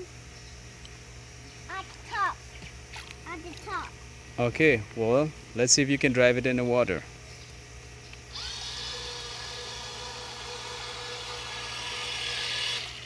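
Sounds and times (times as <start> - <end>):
small electric motor whining: 8.1 - 13.0.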